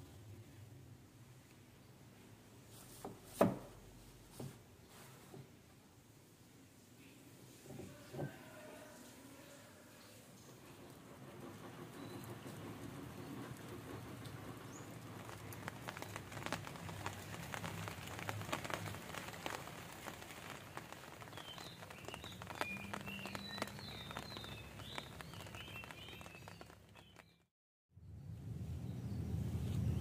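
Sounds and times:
raindrops ticking on wet surfaces: 0:10.4 - 0:27.5.

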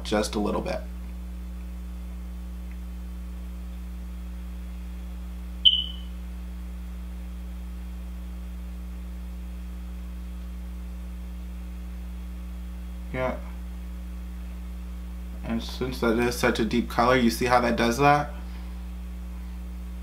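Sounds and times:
electrical mains hum: 0:00.0 - 0:20.0
sharp ringing click: 0:05.6 - 0:06.1.

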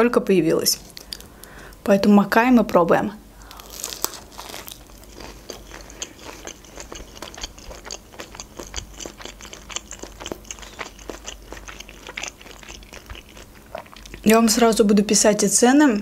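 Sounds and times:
crunchy chewing: 0:03.4 - 0:14.8.

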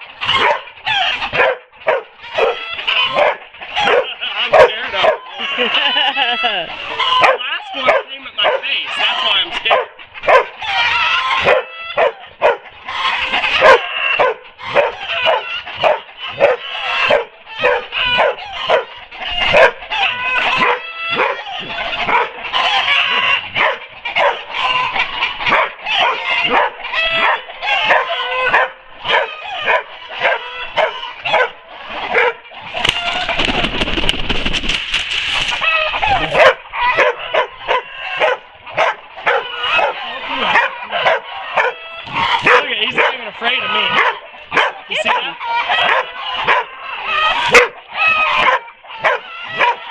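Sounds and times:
dog barking and yipping: 0:00.0 - 0:33.3, 0:35.6 - 0:49.9
rustling noise: 0:32.8 - 0:36.4.

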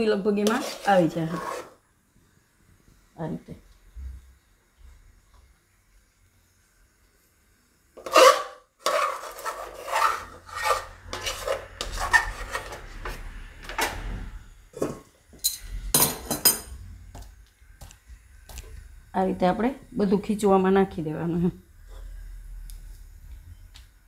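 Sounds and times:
spoon scraping dough from pot: 0:00.4 - 0:01.8, 0:08.0 - 0:13.2.

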